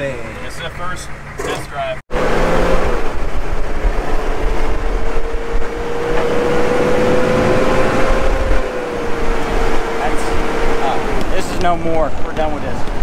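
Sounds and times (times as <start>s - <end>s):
diesel engine rumble: 0.0s - 13.0s.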